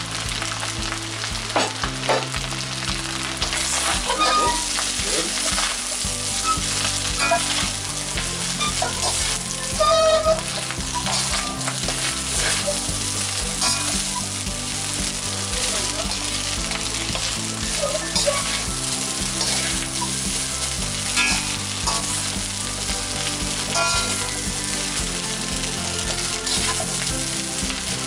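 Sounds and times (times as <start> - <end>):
food sizzling in a wok: 0.0 - 28.0
spatula scraping a wok: 3.5 - 14.2, 15.6 - 25.0.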